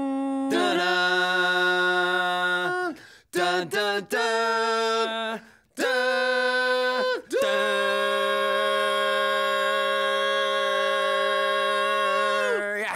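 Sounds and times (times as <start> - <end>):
voices singing a cappella: 0.0 - 12.9.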